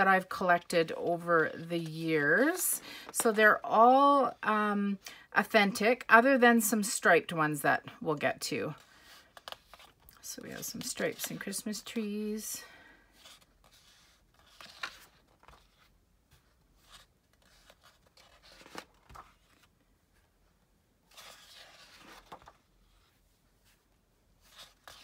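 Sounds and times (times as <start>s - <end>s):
paper sheets rustling: 13.2s - 19.7s, 21.1s - 23.8s.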